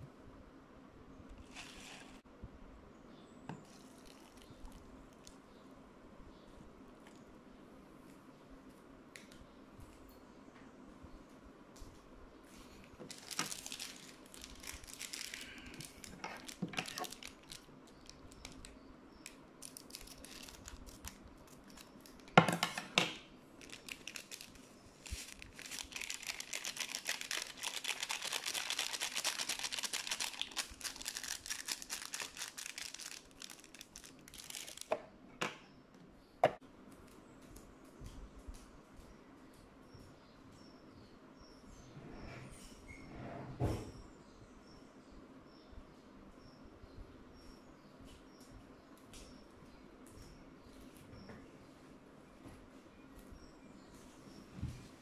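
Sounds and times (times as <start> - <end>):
plastic packaging crinkling: 3.7 - 5.4, 13.0 - 22.4, 23.6 - 35.0.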